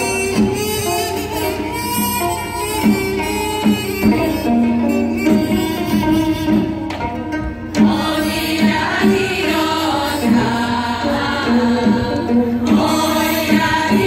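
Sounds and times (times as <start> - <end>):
zither ensemble: 0.0 - 14.0
mixed choir singing: 7.8 - 14.0.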